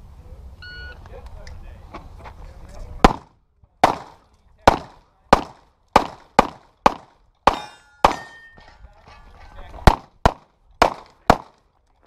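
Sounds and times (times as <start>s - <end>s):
pistol shots: 3.0s - 8.4s, 9.9s - 11.6s
metallic ringing: 7.5s - 9.6s.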